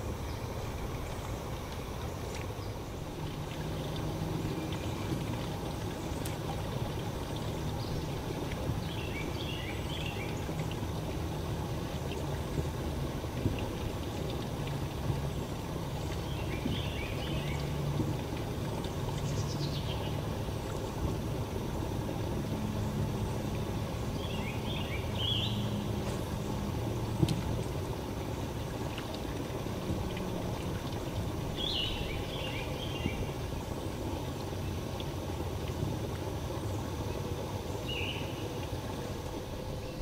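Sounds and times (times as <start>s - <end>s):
steady low hum: 0.0s - 40.0s
songbird singing: 0.2s - 11.1s, 15.3s - 18.0s, 18.7s - 21.1s, 22.8s - 27.8s, 30.8s - 34.8s, 36.6s - 38.7s, 39.6s - 40.0s.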